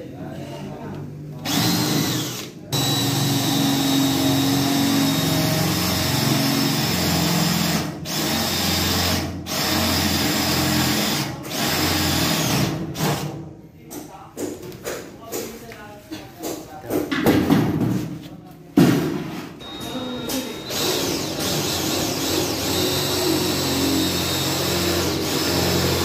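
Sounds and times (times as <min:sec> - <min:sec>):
cordless drill boring sheet metal: 0:01.4 - 0:12.7, 0:19.6 - 0:26.0.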